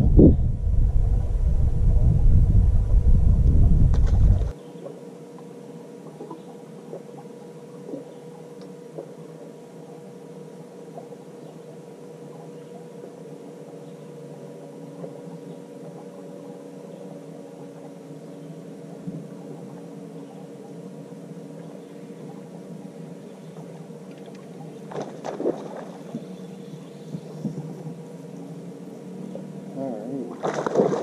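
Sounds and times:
electric boat motor humming: 0.0 - 30.4
short sharp splashes: 24.9 - 26.1, 30.3 - 31.0.

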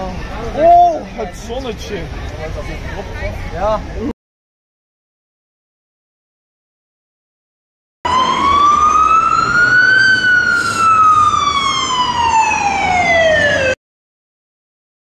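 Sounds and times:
siren-like wail: 8.1 - 13.8.

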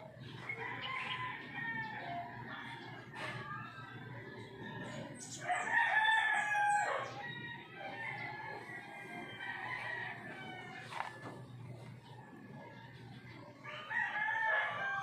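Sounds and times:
rooster crowing: 5.4 - 11.2, 13.6 - 15.0.

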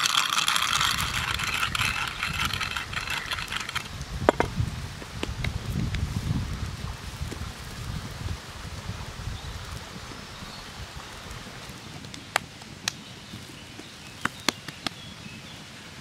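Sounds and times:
salt grains pattering: 0.0 - 3.9
sharp ticks: 0.0 - 3.9.

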